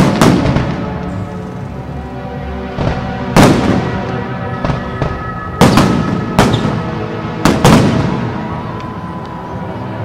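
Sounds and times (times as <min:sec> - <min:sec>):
fireworks bursting with sharp bangs: 0:00.0 - 0:01.1, 0:02.7 - 0:08.5
background music with sustained notes: 0:00.0 - 0:10.0.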